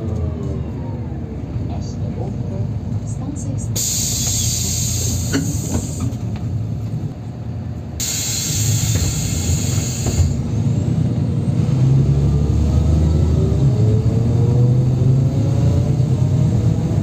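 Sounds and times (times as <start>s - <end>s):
bus engine drone: 0.0s - 17.0s
road noise: 0.0s - 17.0s
hiss: 3.8s - 6.2s, 8.0s - 10.4s.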